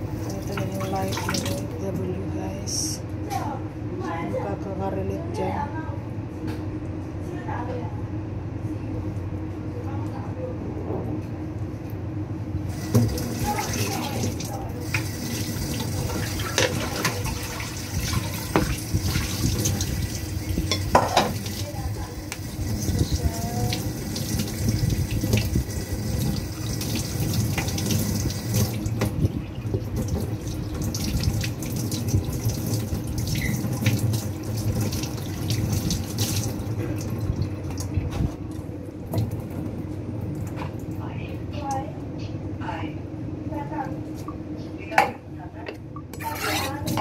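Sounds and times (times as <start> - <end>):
tap water running into sink: 12.7 - 37.9.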